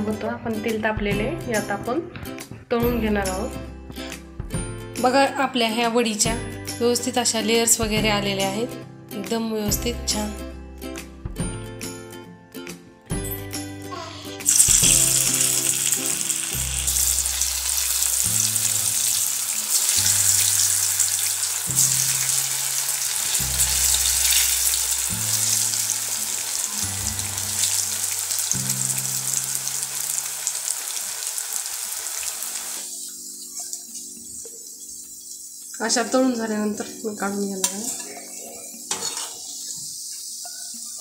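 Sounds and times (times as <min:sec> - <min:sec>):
background music with slow bass: 0:00.0 - 0:37.4
oil sizzling while deep-frying: 0:14.4 - 0:41.0.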